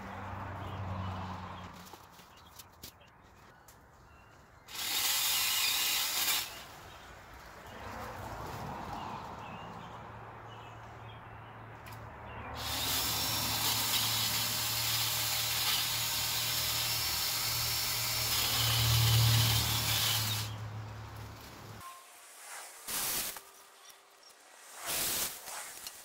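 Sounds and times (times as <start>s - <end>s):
cordless pole saw whirring: 4.7s - 6.7s, 12.6s - 20.6s.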